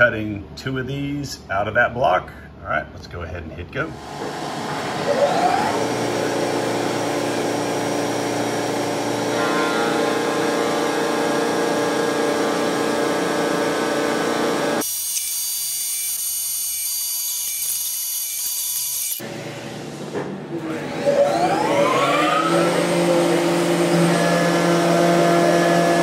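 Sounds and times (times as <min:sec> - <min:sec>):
mill spindle whine: 0:04.0 - 0:14.8, 0:20.6 - 0:26.0
end mill cutting metal: 0:04.0 - 0:19.3, 0:20.7 - 0:26.0.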